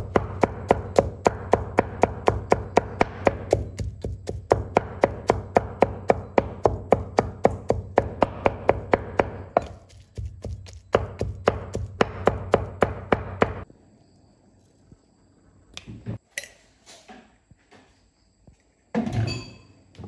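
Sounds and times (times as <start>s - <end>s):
cleaver chopping on wooden board: 0.0s - 13.6s.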